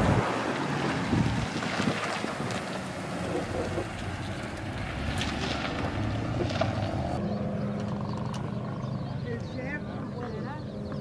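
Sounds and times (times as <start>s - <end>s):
wind noise on microphone: 0.0s - 3.8s
vehicle engine running: 0.0s - 11.0s.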